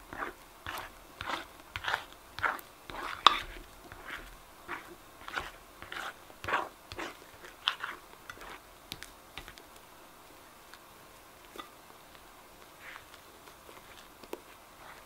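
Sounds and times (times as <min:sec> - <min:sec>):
slime squelching: 0:00.1 - 0:09.6, 0:12.7 - 0:15.0.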